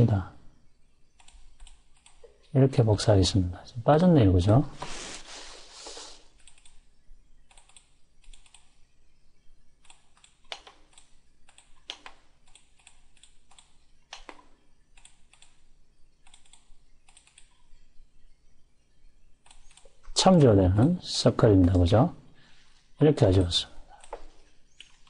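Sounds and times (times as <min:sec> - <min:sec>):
keyboard and mouse clicking: 0:01.2 - 0:02.5, 0:06.4 - 0:06.9, 0:07.5 - 0:08.8, 0:09.8 - 0:17.8, 0:19.4 - 0:20.5, 0:23.3 - 0:25.0.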